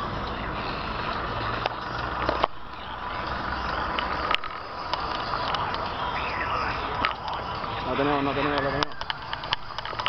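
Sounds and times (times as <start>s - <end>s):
street traffic noise: 0.0s - 10.0s
sharp clicks and knocks: 8.8s - 10.0s.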